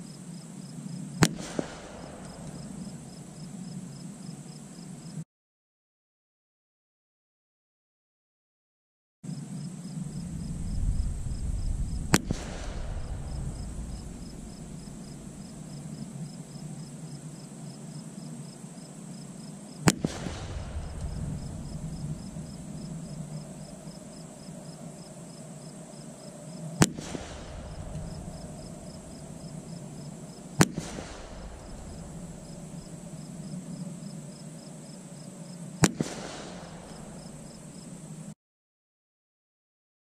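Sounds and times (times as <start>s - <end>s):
rifle shots: 1.2s - 3.2s, 10.1s - 16.1s, 19.8s - 24.0s, 26.8s - 33.4s, 35.8s - 37.5s.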